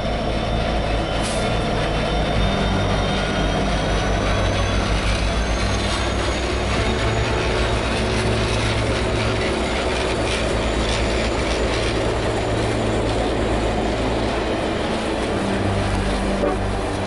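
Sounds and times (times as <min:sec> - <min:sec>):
low hum: 0:00.0 - 0:17.0
train wheels rumbling on rails: 0:00.0 - 0:17.0.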